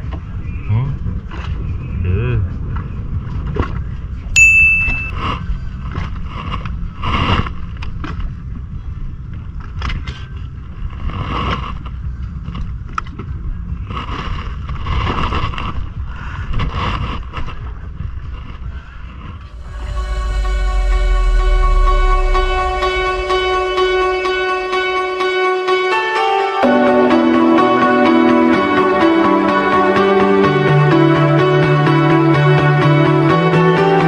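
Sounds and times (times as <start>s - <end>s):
wind and water against boat: 0.0s - 19.5s
sharp high ding: 4.4s - 5.2s.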